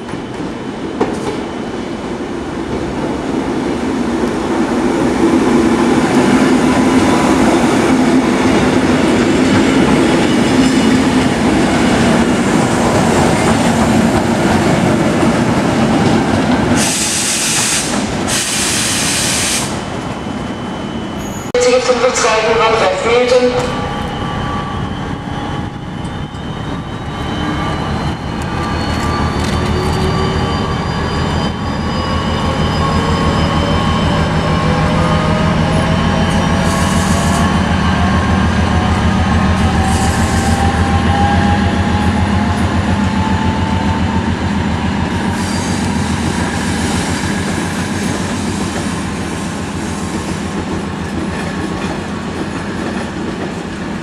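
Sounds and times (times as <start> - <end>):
train wheel squeals: 16.7 - 21.6, 23.5 - 50.6.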